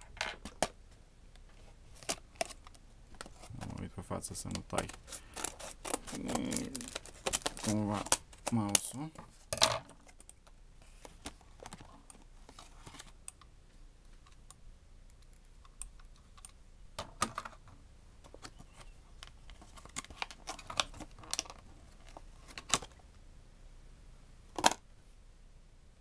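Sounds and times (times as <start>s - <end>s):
plastic packaging crackling: 4.4s - 9.0s, 19.5s - 22.9s.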